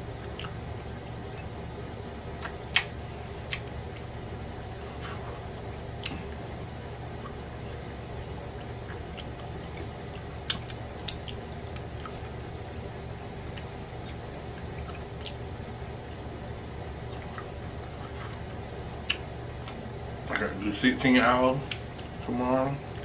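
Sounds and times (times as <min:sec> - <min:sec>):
man chewing meat: 0:00.0 - 0:20.3, 0:21.6 - 0:23.0
steady low hum: 0:00.0 - 0:23.0
mouth clicks and smacks: 0:00.3 - 0:00.6, 0:02.4 - 0:04.1, 0:08.7 - 0:12.2.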